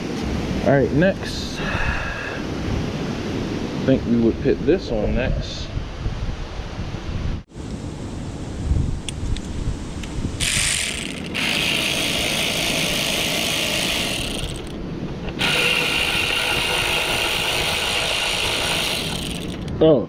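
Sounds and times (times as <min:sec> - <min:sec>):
electric ratchet running: 0:10.4 - 0:19.7.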